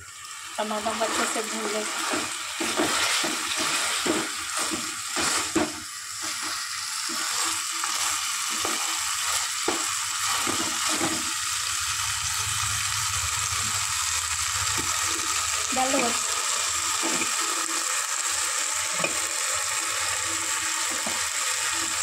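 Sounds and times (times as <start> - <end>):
tomatoes sizzling in oil: 0.0 - 22.0
wooden spatula scraping a pan: 0.9 - 11.3.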